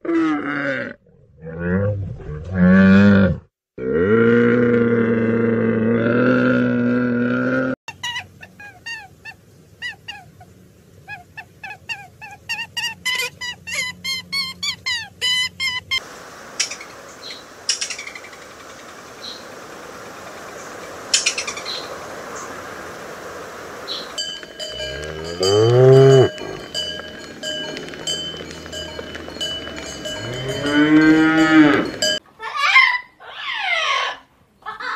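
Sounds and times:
high falling chirps: 13.7s - 32.2s
cow mooing: 24.6s - 32.2s.

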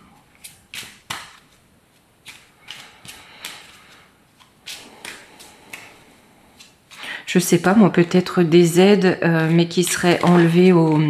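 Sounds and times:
cards being shuffled: 0.2s - 7.1s, 9.4s - 11.0s.

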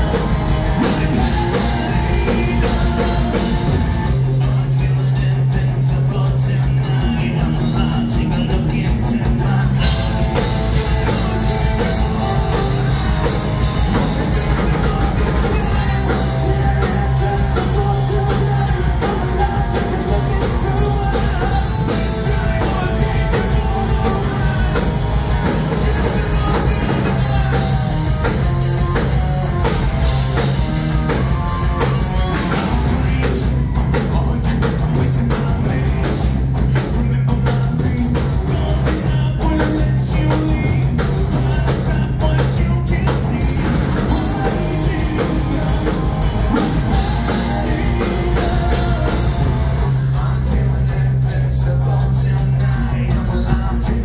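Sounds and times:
person singing: 0.0s - 29.7s, 31.1s - 54.0s
bass guitar: 0.0s - 54.0s
drum kit: 0.0s - 54.0s
electric guitar: 0.0s - 54.0s.

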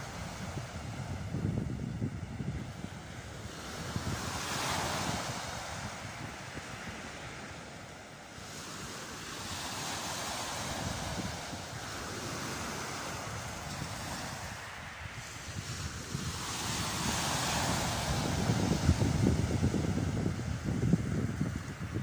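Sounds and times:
small waves washing up a beach: 0.0s - 22.0s
wind buffeting microphone: 0.0s - 22.0s.

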